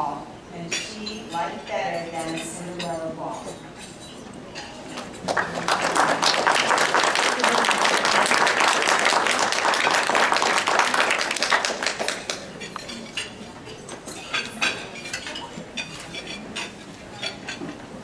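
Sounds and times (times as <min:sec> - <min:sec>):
dishes and cutlery clinking: 0:00.6 - 0:05.6, 0:11.4 - 0:18.0
people clapping: 0:04.9 - 0:12.9.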